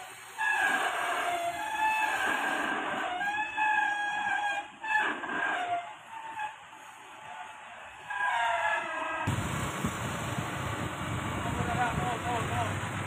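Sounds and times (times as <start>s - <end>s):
forklift engine running: 9.3s - 13.0s.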